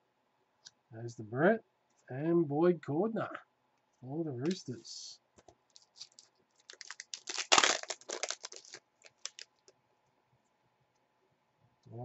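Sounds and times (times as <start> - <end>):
foil wrapper crinkling and tearing: 5.7 - 9.7.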